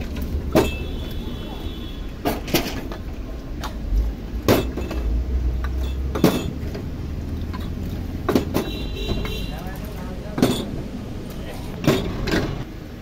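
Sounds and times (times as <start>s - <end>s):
road traffic rumble: 0.0s - 13.0s
kitchenware clinking: 4.5s - 6.7s, 7.6s - 10.8s.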